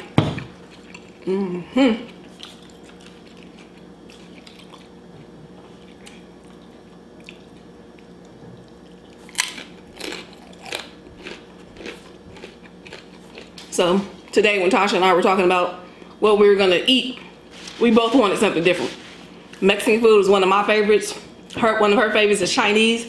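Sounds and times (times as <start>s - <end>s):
crisp crunching bites: 9.2s - 13.7s.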